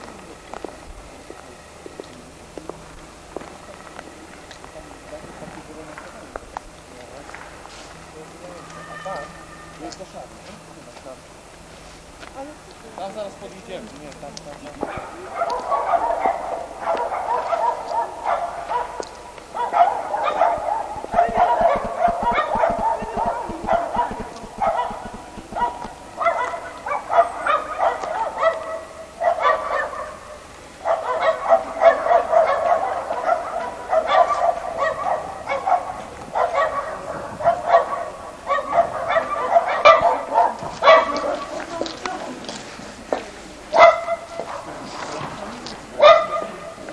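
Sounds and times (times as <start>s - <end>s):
dog barking: 14.8s - 41.5s, 43.7s - 44.8s, 46.0s - 46.8s.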